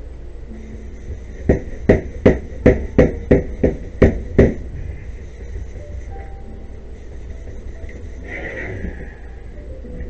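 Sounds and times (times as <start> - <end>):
plastic panel knocking on wood: 1.4 - 4.7.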